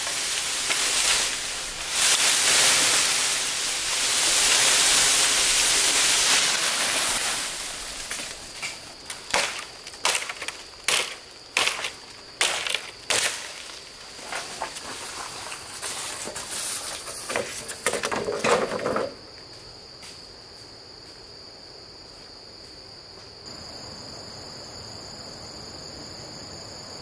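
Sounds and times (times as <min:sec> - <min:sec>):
loud steady hiss: 0:00.0 - 0:18.0.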